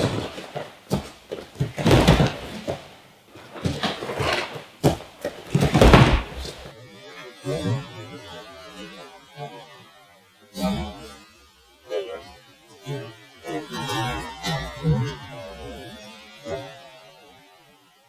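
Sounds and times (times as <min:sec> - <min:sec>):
bodies colliding with thuds: 0:00.0 - 0:02.9, 0:04.8 - 0:06.7
bare feet scuffing on mats: 0:00.0 - 0:06.7.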